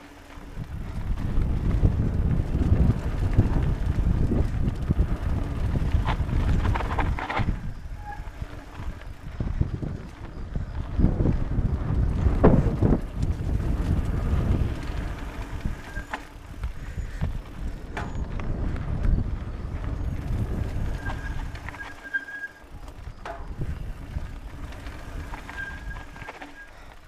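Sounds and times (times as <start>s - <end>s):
wind on microphone: 0.0s - 26.8s
bike clicks and rattles: 0.0s - 27.0s
tyres rumbling on dirt: 0.0s - 27.0s
thin squeaks: 6.0s - 9.4s, 14.8s - 18.4s, 19.9s - 27.0s.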